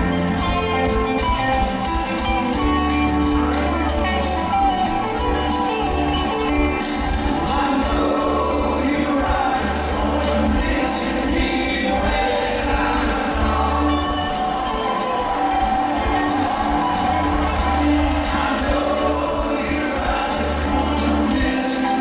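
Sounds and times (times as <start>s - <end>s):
live rock band over pa: 0.0s - 22.0s
voices singing together: 6.0s - 22.0s.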